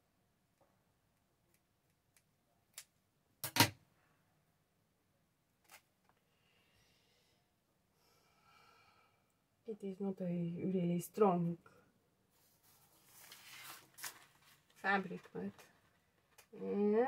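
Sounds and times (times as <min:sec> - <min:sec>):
faint rustling: 0:12.3 - 0:16.5.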